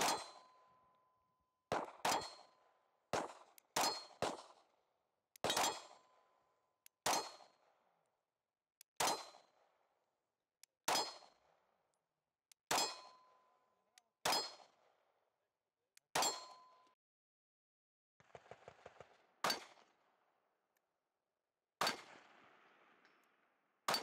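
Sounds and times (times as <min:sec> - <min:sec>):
pistol shots: 0:01.7 - 0:04.7, 0:05.4 - 0:06.0, 0:18.2 - 0:20.1, 0:21.8 - 0:23.3.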